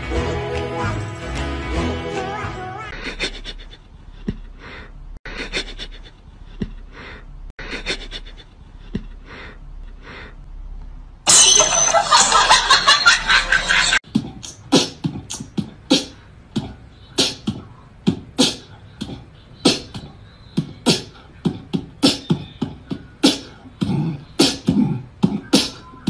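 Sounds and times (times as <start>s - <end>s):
percussive beat: 20.6s - 25.8s.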